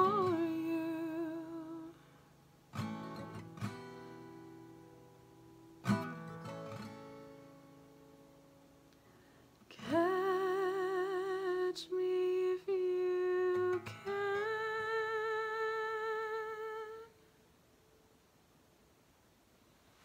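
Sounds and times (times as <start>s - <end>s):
woman singing wordless vocal: 0.0s - 2.0s, 9.7s - 17.2s
acoustic guitar chord: 0.0s - 11.7s.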